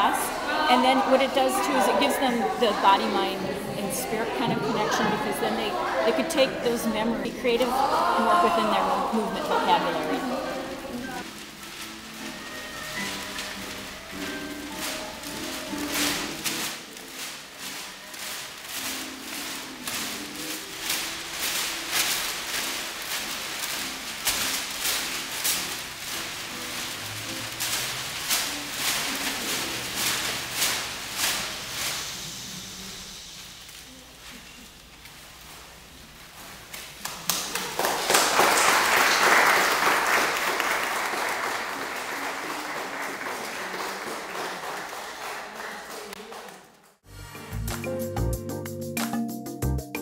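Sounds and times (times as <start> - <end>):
newspaper crumpling rustle: 6.2 - 41.8
small group applauding: 37.0 - 47.0.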